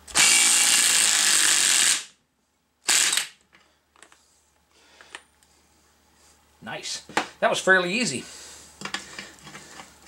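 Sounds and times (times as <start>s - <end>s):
cordless power tool spinning: 0.1s - 2.1s, 2.9s - 3.3s.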